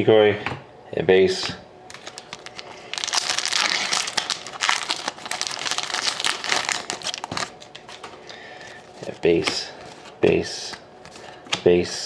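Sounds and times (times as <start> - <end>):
foil wrapper crinkling: 1.9 - 11.4.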